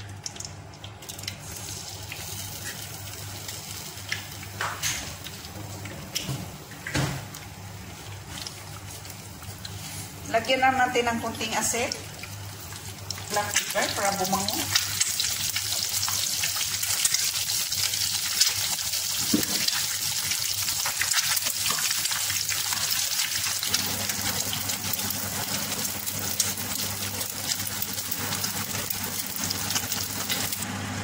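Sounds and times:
eggs sizzling in oil: 0:00.0 - 0:31.0.

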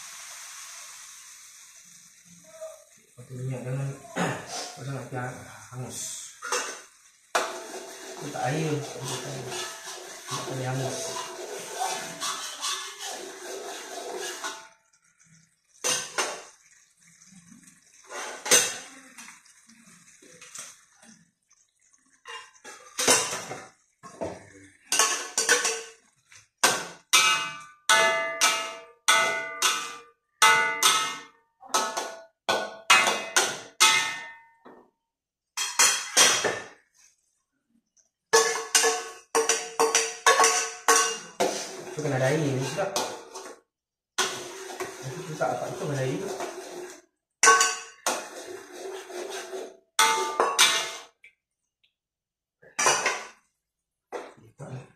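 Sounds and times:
metal spatula clanking on wok: 0:26.6 - 0:34.4, 0:38.4 - 0:41.9, 0:47.4 - 0:48.5, 0:50.0 - 0:51.1.

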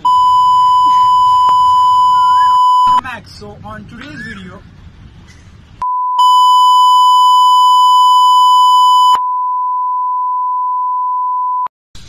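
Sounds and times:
steady test tone beep: 0:00.0 - 0:03.0, 0:05.8 - 0:11.7.

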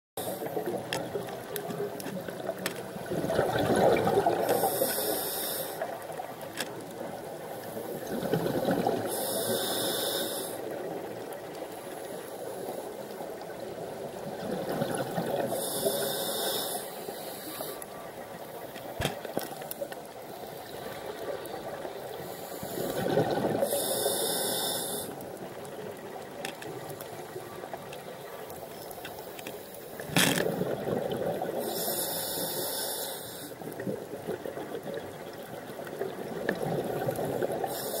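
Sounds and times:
exhaled bubbles rushing: 0:03.0 - 0:04.5, 0:22.8 - 0:23.6
scuba regulator hissing inhalation: 0:04.4 - 0:05.9, 0:09.1 - 0:10.6, 0:15.5 - 0:17.8, 0:22.2 - 0:25.2, 0:31.6 - 0:33.6, 0:37.6 - 0:38.0.

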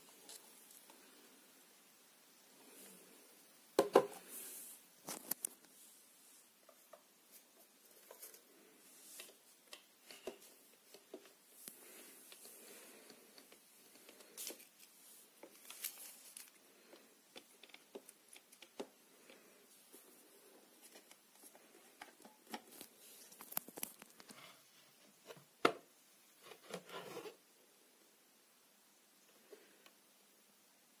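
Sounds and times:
hands handling plastic: 0:06.7 - 0:19.4, 0:20.6 - 0:24.4.

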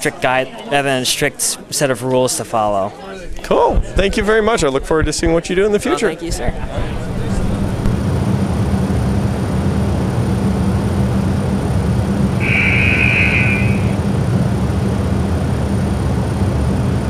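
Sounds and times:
high-pitched tone: 0:12.4 - 0:14.0.

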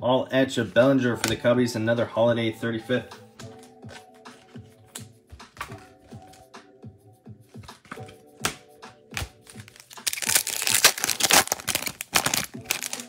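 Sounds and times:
background music: 0:00.0 - 0:13.0
foil wrapper tearing and crinkling: 0:09.2 - 0:13.0.

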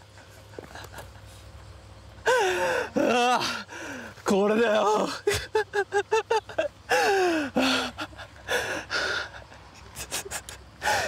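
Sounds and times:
man gasping and panting: 0:02.2 - 0:04.2, 0:06.9 - 0:11.0.

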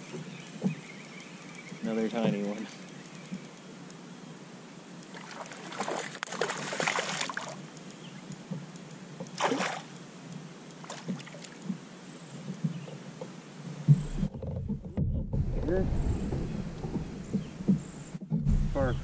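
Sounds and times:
water splashing: 0:05.0 - 0:07.7, 0:09.3 - 0:10.0, 0:10.8 - 0:11.8
loud thump: 0:14.7 - 0:19.0.

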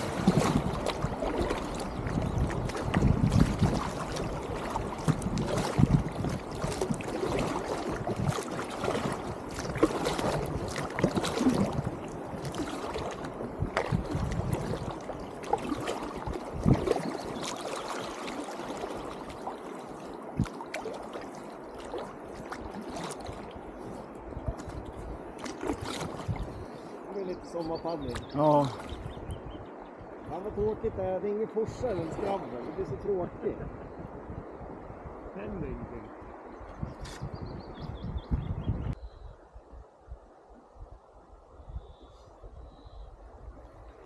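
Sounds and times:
small splashes and knocks: 0:00.0 - 0:26.8, 0:28.0 - 0:29.2
paddle blades dipping in water: 0:00.0 - 0:29.3
river water lapping against raft: 0:00.0 - 0:37.4.

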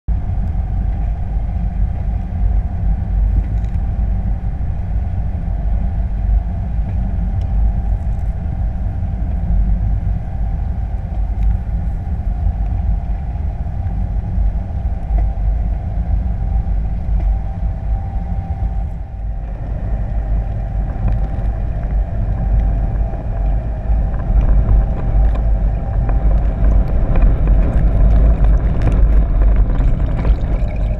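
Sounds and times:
boat engine and propeller: 0:00.1 - 0:30.9
faint steady whine: 0:00.1 - 0:30.9
water rushing underwater: 0:19.5 - 0:30.9.

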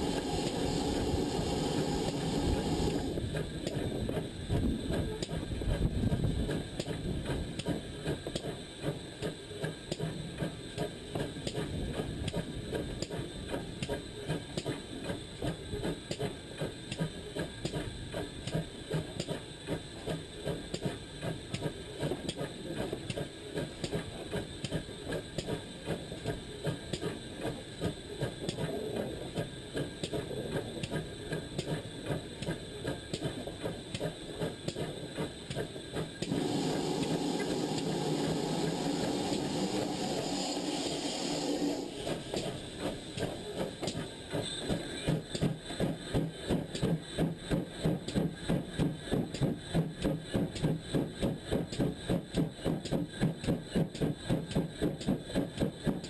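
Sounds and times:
steam hiss: 0:00.0 - 0:03.2, 0:36.2 - 0:44.2
steam locomotive beats: 0:00.0 - 0:56.0.

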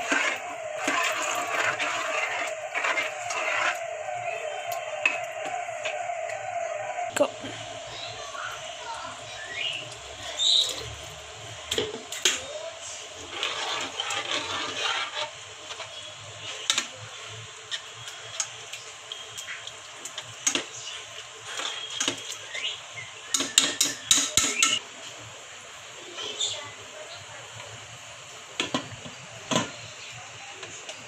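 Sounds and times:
water pouring into pot: 0:00.0 - 0:05.4.

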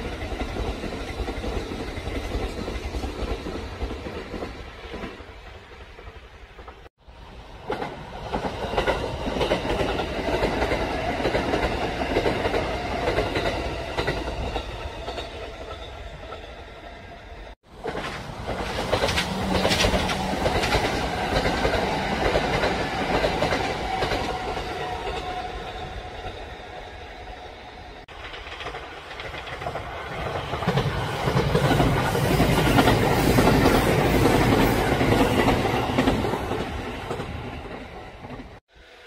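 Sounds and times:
train wheels clattering over rails: 0:17.7 - 0:26.4, 0:28.1 - 0:38.6.

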